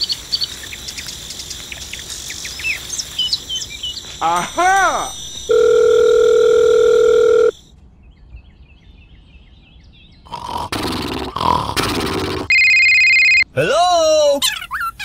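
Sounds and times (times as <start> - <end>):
steady electronic beep tone: 12.5 - 13.4.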